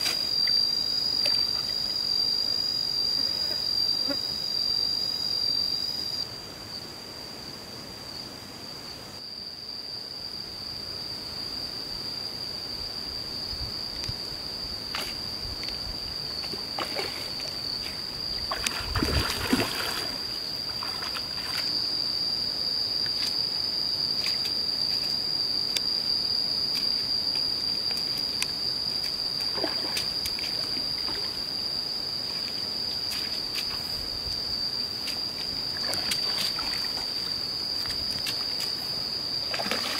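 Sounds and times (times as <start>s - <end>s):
fish thrashing and splashing: 18.5s - 21.6s, 39.5s - 39.9s.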